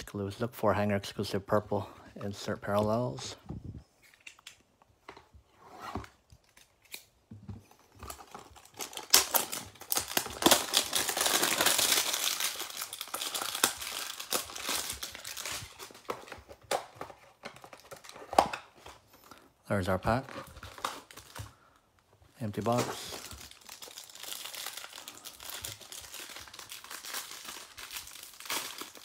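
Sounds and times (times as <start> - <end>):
wrapper crinkling: 7.8 - 16.3, 22.4 - 29.0.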